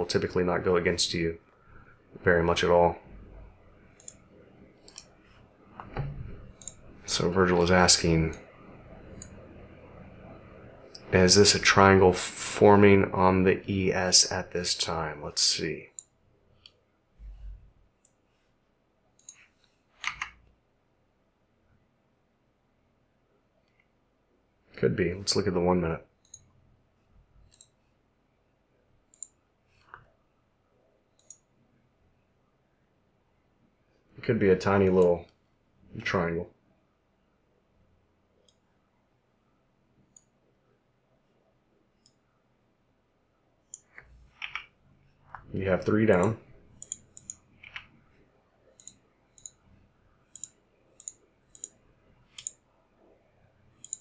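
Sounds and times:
computer mouse clicks: 4.0s - 4.2s, 4.8s - 5.2s, 5.8s - 6.9s, 19.2s - 20.5s, 26.2s - 26.5s, 27.4s - 27.8s, 29.1s - 30.1s, 31.1s - 31.5s, 43.7s - 44.7s, 46.1s - 48.0s, 48.7s - 49.6s, 50.3s - 52.6s, 53.8s - 54.0s
computer mouse button clicking: 52.4s - 52.6s.

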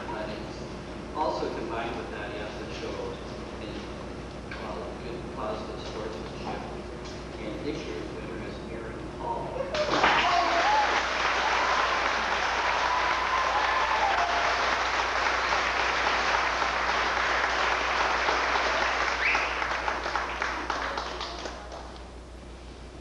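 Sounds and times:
audience applauding: 9.7s - 22.0s.

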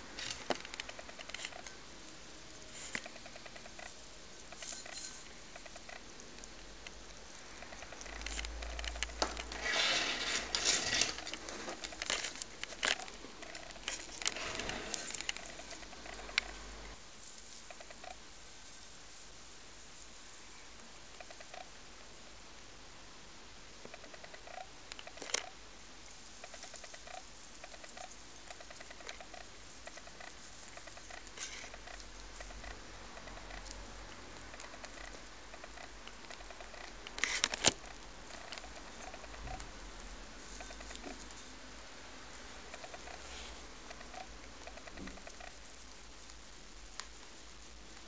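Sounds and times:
rabbits chewing hay: 0.0s - 48.0s
rabbits crunching dry hay: 7.4s - 16.6s.

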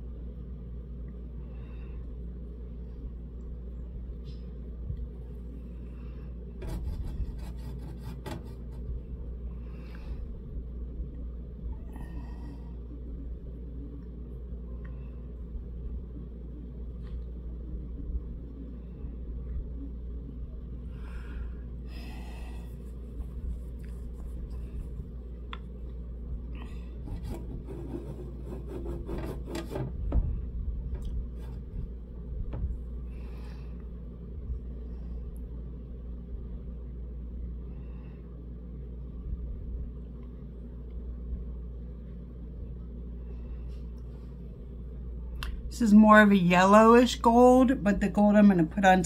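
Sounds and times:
steady low hum: 0.0s - 49.0s
makeup brush scraping palette: 6.6s - 9.0s, 27.0s - 30.0s.

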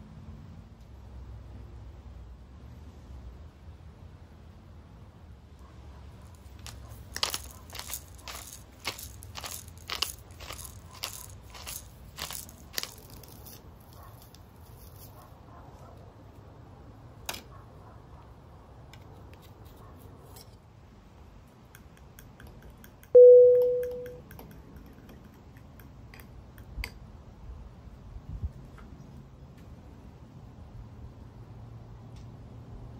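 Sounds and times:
pepper mill grinding: 6.3s - 15.2s.

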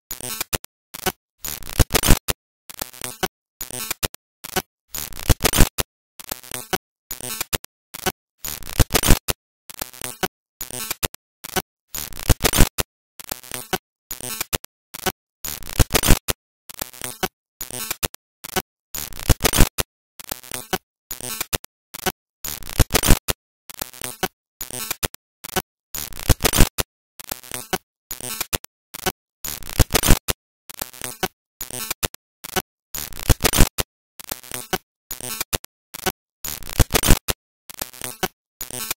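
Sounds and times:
harsh static crackling bursts: 1.4s - 2.3s, 3.0s - 5.8s, 8.4s - 10.1s, 10.7s - 12.8s, 15.7s - 16.3s, 19.0s - 19.8s, 22.6s - 23.3s, 26.0s - 26.8s, 29.6s - 30.3s, 32.4s - 34.5s, 36.5s - 37.3s.

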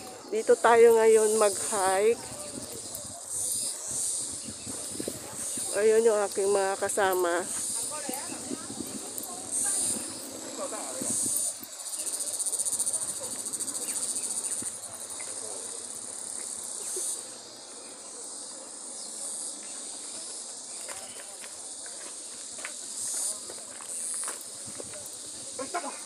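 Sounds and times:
insects chirring: 0.0s - 26.0s.

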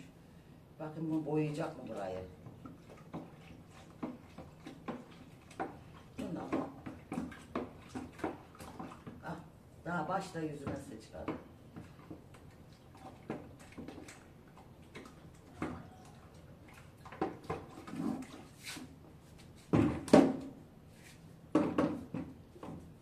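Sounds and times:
plastic bucket knocking on tiles: 19.7s - 20.5s, 21.5s - 22.8s.

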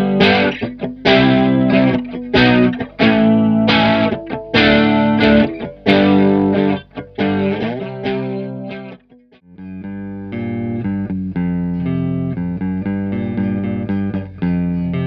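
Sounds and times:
overdriven electric guitar chords: 0.0s - 15.0s.

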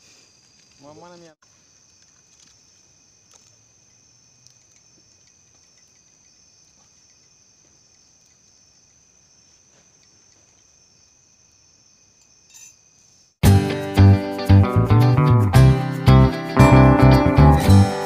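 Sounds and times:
night insects chirring: 0.0s - 13.4s.

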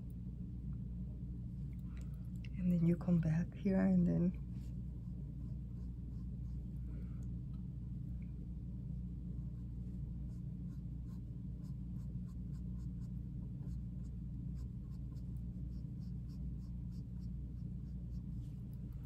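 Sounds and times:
steady low hum: 0.0s - 19.0s
pencil scratching on fabric: 9.4s - 18.6s.

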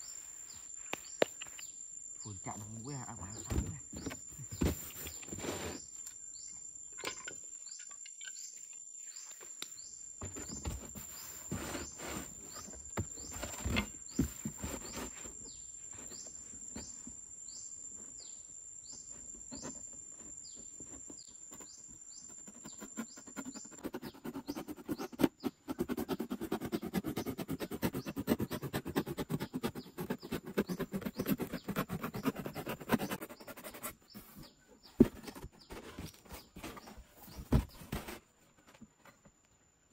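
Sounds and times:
cardboard box handling: 34.3s - 38.9s.

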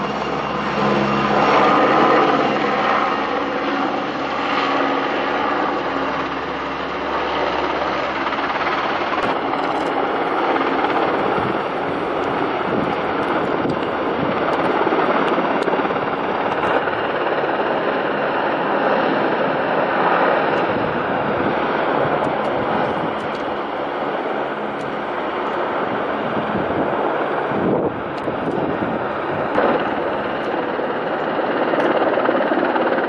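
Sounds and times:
helicopter turbine and rotor noise: 0.0s - 33.0s
wind on microphone: 7.1s - 33.0s.

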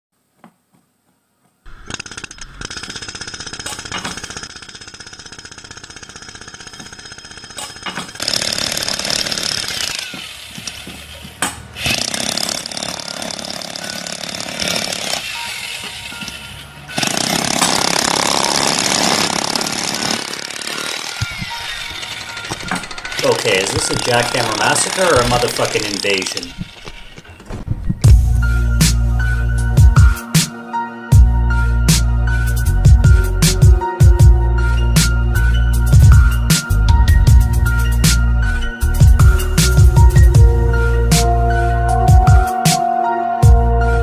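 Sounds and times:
jackhammer hammering: 1.7s - 27.2s.

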